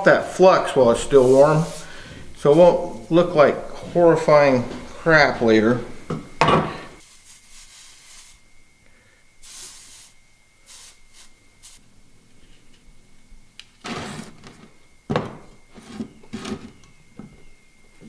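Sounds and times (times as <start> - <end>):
cloth rag rubbing on pipe: 0.9 - 1.9.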